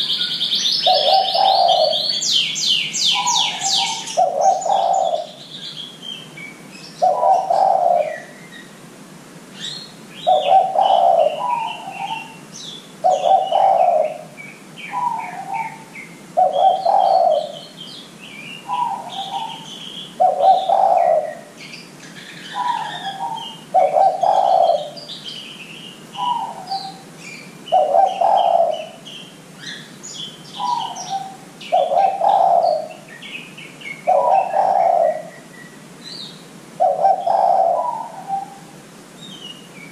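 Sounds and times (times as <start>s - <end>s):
dove cooing: 0.0s - 5.8s, 7.0s - 8.4s, 10.2s - 12.4s, 13.0s - 17.8s, 18.6s - 21.6s, 22.2s - 25.2s, 26.2s - 27.1s, 27.7s - 29.8s, 30.6s - 33.1s, 34.0s - 35.5s, 36.8s - 38.8s
small birds chirping: 0.0s - 8.9s, 9.5s - 39.9s.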